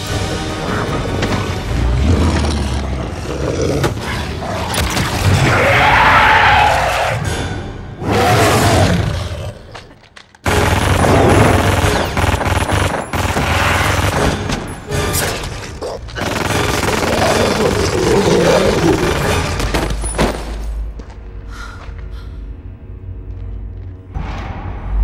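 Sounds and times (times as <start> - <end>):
dramatic film score: 0.0 - 25.0
impact effects: 24.1 - 25.0.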